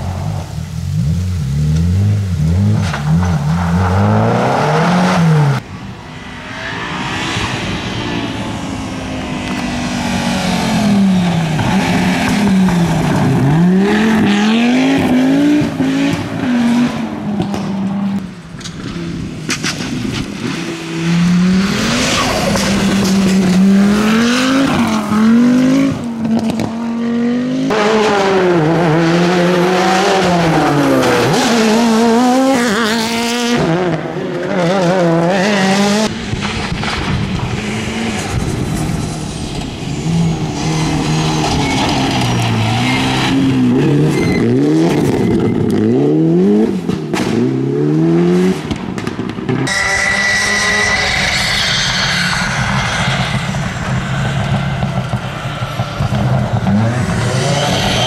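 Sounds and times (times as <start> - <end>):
rally car engines revving: 0.0 - 58.0.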